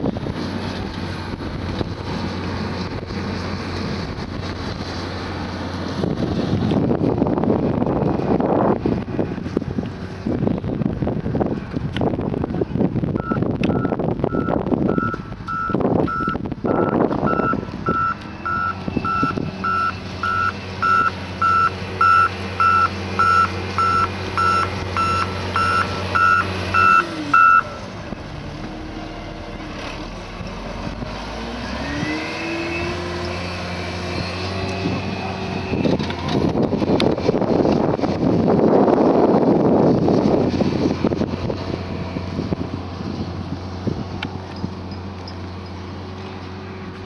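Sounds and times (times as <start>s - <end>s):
wind gusts on microphone: 0.0s - 45.2s
diesel engine running: 0.0s - 47.0s
reversing alarm beeping: 13.2s - 27.8s.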